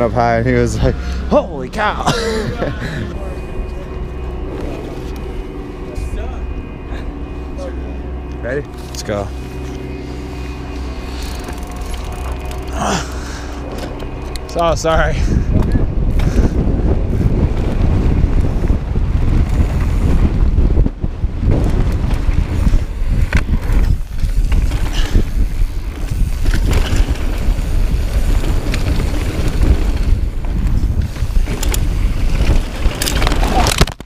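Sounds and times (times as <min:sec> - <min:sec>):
wind buffeting microphone: 0:02.6 - 0:34.0
bike clicks and rattles: 0:08.3 - 0:34.0.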